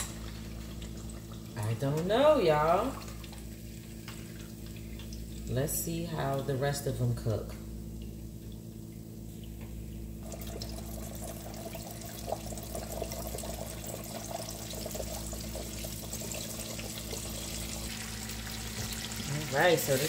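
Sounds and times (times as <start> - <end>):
hot oil sizzling and crackling: 0.0 - 1.6, 10.2 - 20.0
steady low hum: 0.0 - 20.0.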